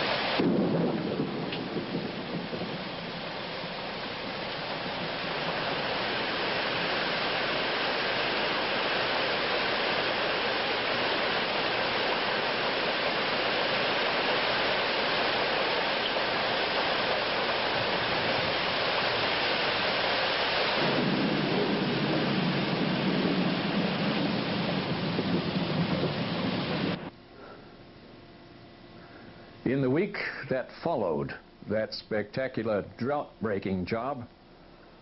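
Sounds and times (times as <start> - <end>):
heavy rain on tarmac: 0.0 - 27.1.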